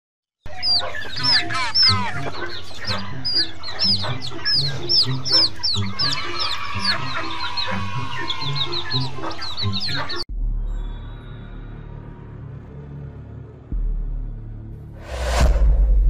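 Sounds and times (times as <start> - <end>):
chicks peeping and clucking: 0.5 - 10.2
music: 0.5 - 16.0.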